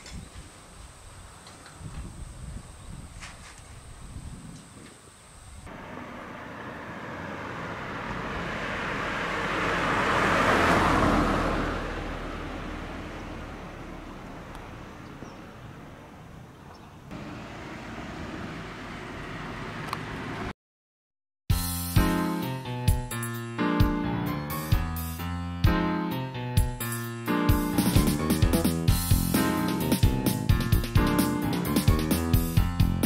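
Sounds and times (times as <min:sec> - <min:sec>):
low outdoor rumble: 0:05.6 - 0:20.5
car driving past: 0:05.7 - 0:16.2.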